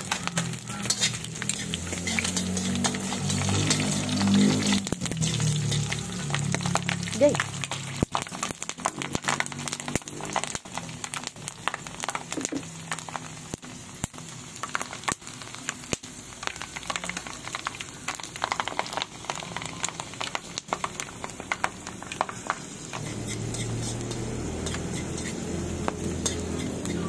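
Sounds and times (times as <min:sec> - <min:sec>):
fish frying in hot oil: 0:00.0 - 0:27.0.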